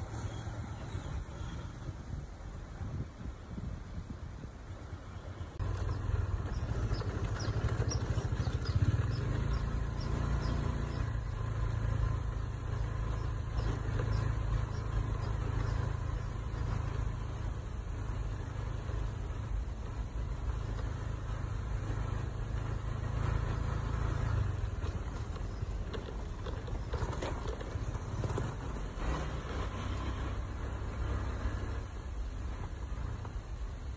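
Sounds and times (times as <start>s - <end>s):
engine running low hum: 0.0s - 33.9s.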